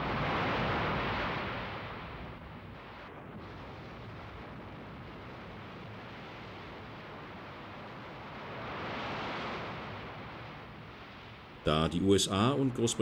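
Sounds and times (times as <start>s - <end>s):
rushing wind: 0.0s - 13.0s
sea noise: 0.0s - 13.0s.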